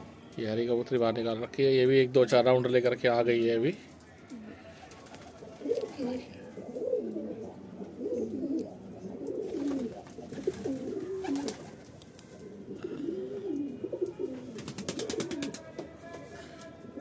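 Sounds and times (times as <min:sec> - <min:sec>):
pigeons cooing: 0:04.3 - 0:15.6.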